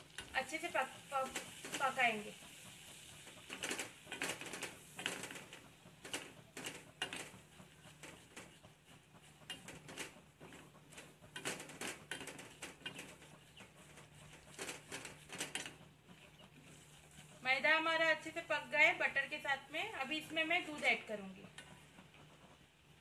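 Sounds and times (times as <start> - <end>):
roux sizzling faintly: 0.0 - 23.0
spatula scraping a metal pot: 3.4 - 17.7.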